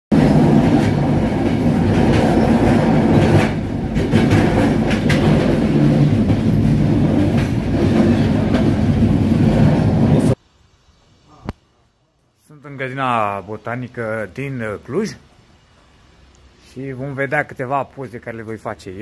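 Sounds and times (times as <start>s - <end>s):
train wheels rumbling on rails: 0.1s - 10.4s
wheels clickety-clack on track: 0.2s - 10.4s.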